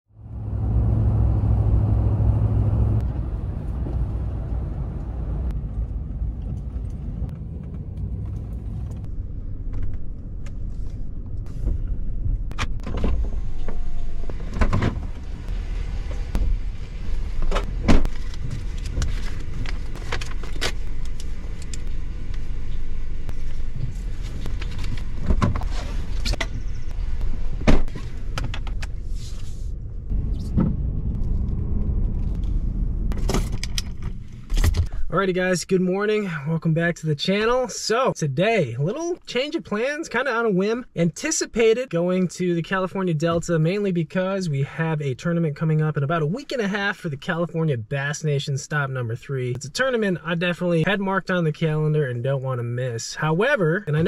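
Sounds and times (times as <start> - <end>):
strong hum: 0.1 - 34.9
vehicle cab rumble: 0.1 - 35.7.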